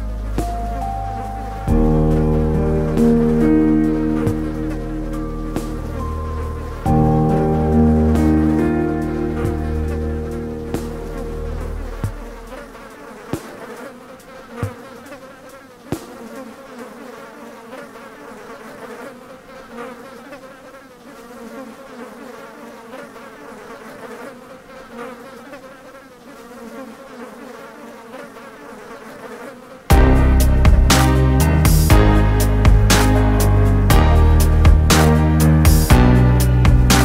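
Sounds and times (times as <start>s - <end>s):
music: 0.0s - 12.8s, 29.9s - 37.0s
buzzing drone: 0.0s - 20.4s, 29.9s - 37.0s.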